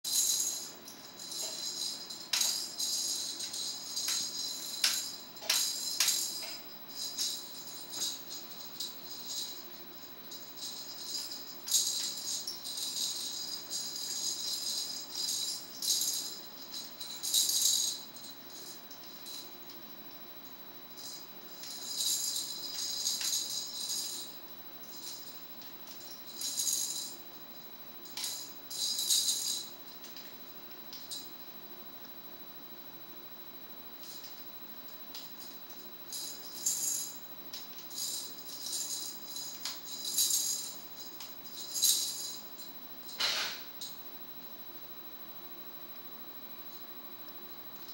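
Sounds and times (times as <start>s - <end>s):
toy maraca beads rattling: 0.1s - 19.5s, 21.0s - 27.2s, 28.0s - 30.3s, 35.2s - 43.3s.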